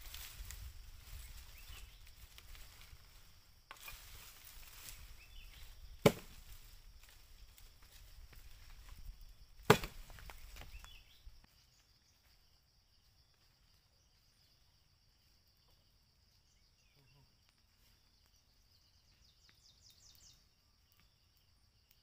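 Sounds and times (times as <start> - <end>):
insects droning: 0.0 - 22.0
sharp wooden knocks: 9.7 - 10.1.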